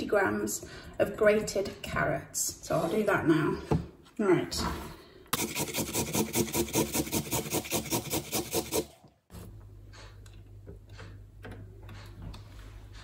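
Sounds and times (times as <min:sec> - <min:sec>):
carrot grated on metal grater: 0:05.4 - 0:09.0.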